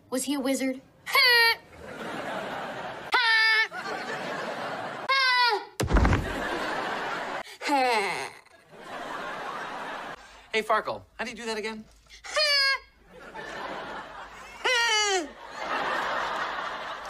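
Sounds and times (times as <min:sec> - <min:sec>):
boy's high-pitched exclamations: 0:01.1 - 0:01.6, 0:12.3 - 0:12.9
studio audience laughter: 0:01.7 - 0:05.1, 0:06.2 - 0:07.4, 0:08.6 - 0:10.4, 0:13.1 - 0:14.7, 0:15.3 - 0:17.0
body thudding onto gym mat: 0:05.8 - 0:06.5.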